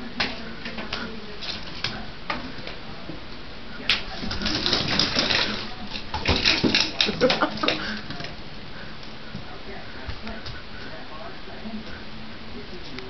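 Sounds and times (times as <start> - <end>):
blind slats clacking and rattling: 4.1 - 7.8.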